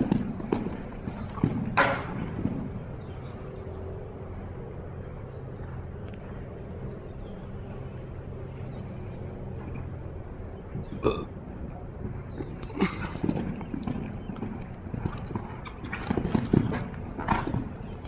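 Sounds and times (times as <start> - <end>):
low hum: 0.0 - 18.0
hoofbeats on sand: 12.0 - 18.0.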